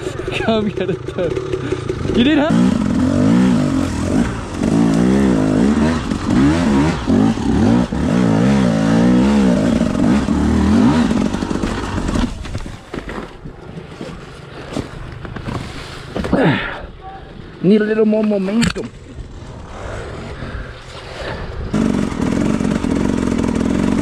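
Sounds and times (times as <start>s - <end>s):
dirt bike engine revving: 0.0s - 12.5s, 21.7s - 24.0s.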